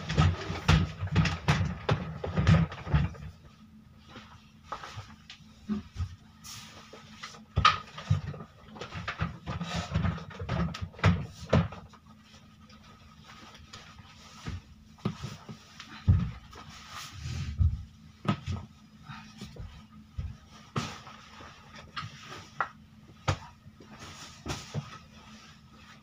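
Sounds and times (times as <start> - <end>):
bed frames knocking and scraping: 0.0 - 3.4, 7.4 - 12.0.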